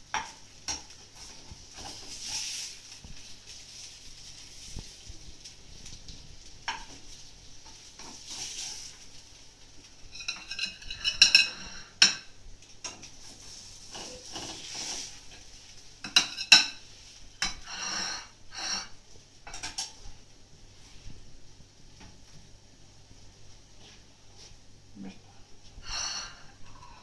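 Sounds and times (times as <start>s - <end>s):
faint sizzle: 0.0s - 27.0s
metal turner scraping a pan: 0.7s - 4.9s, 6.6s - 9.0s, 10.0s - 20.0s.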